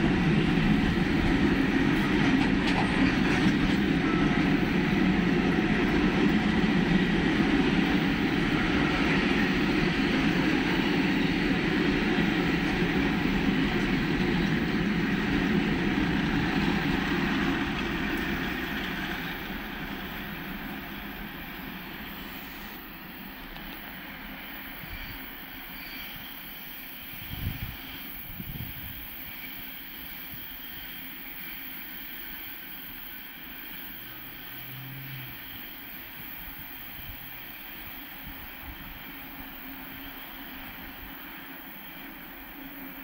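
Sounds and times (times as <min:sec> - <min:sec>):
electric locomotives rolling past: 0:00.0 - 0:43.0
wind on microphone: 0:27.1 - 0:29.2.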